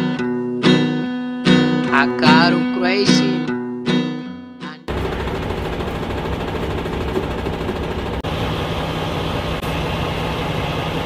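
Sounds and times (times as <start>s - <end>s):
truck engine idling: 4.9s - 11.0s.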